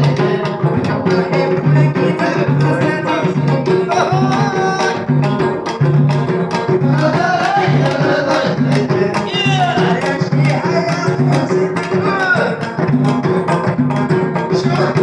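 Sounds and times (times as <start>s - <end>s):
hand drum strokes: 0.0s - 15.0s
plucked banjo: 0.0s - 15.0s.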